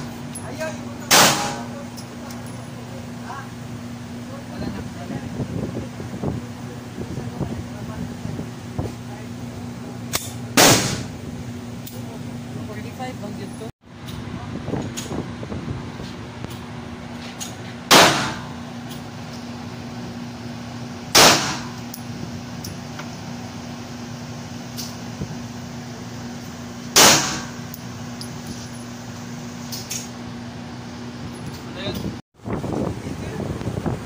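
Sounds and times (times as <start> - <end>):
steady low hum: 0.0 - 34.0
handgun shots: 1.1 - 1.6, 10.1 - 11.1, 17.9 - 18.5, 21.1 - 21.8, 27.0 - 27.6.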